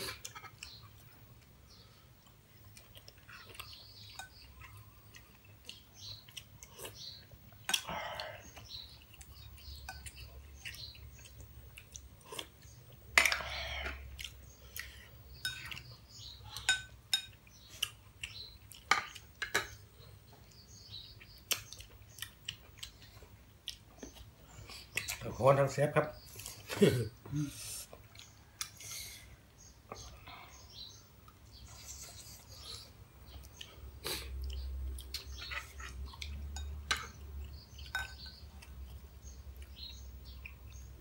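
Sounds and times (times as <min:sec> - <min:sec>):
people chewing food: 0:00.0 - 0:41.0
spoons clinking on ceramic bowls: 0:37.9 - 0:38.4.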